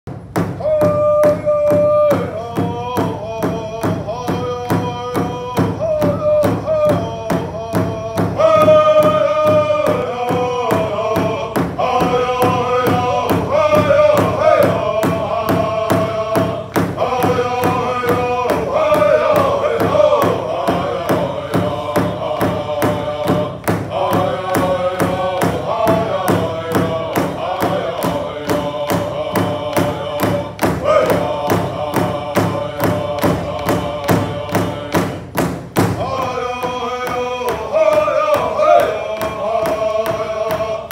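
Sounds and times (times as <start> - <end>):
large hide drum beat: 0.1 - 40.9
men singing in high voices: 0.3 - 40.9.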